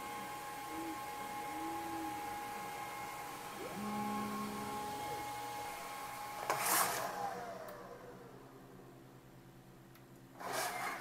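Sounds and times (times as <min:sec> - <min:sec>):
laser engraver running tones: 0:00.0 - 0:05.9
whir falling in pitch: 0:00.1 - 0:07.8.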